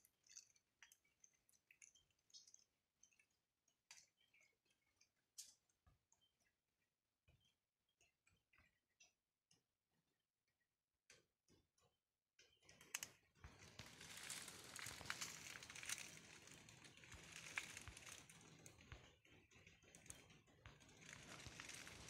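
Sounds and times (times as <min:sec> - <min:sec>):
footsteps crunching dry leaves: 0:13.6 - 0:18.2.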